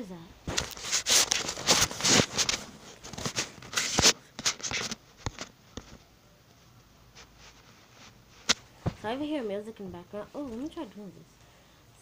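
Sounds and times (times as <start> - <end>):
crackling bursts and clicks: 0.4 - 8.7
fabric rustling on microphone: 0.5 - 6.0, 7.1 - 9.4.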